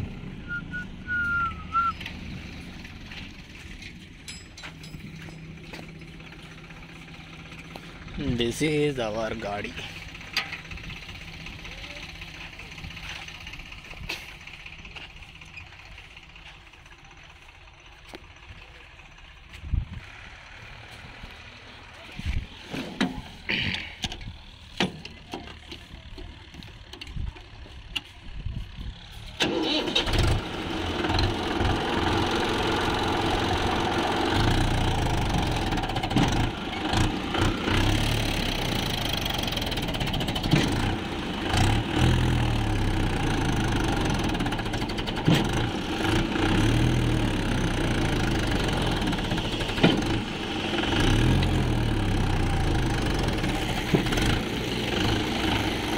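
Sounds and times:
tractor diesel engine: 0.0 - 55.9.

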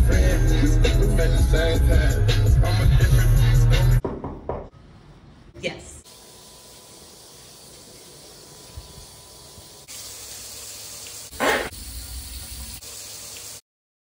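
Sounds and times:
water running into drain: 6.1 - 13.6.

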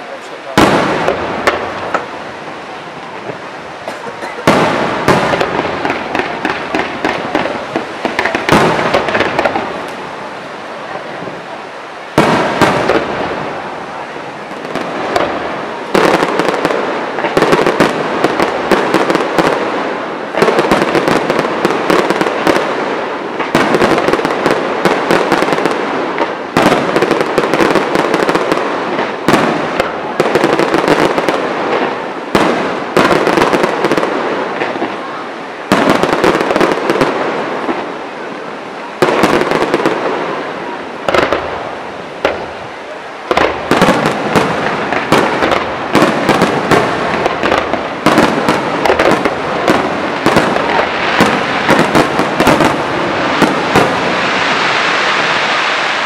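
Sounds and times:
fireworks bursting with bangs: 0.0 - 56.0
fireworks crackling: 0.0 - 56.0.

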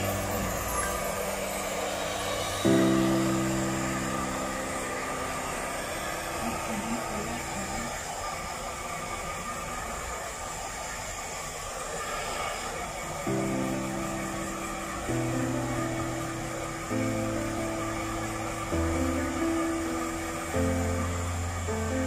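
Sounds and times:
background music chord: 0.0 - 8.2, 13.3 - 22.0
hair dryer blowing: 0.0 - 22.0.

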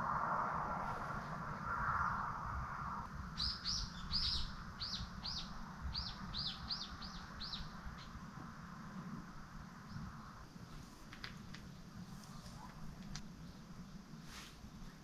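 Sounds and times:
faint low rumble: 0.0 - 15.0
bird chirping: 3.3 - 8.2.

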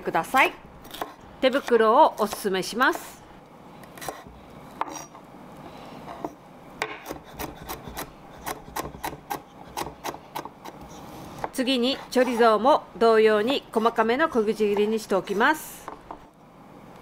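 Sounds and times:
knife chopping on wooden board: 0.9 - 2.4, 6.2 - 12.3.

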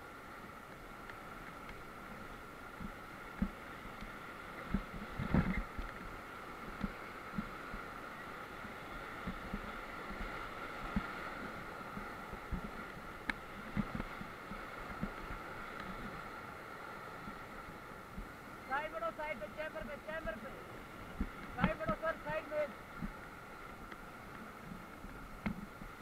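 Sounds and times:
white-water rapids rushing: 0.0 - 26.0.

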